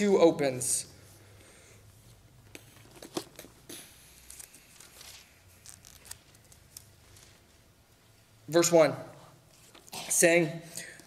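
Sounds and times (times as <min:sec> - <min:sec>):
paper pages rustling: 0:02.6 - 0:07.4.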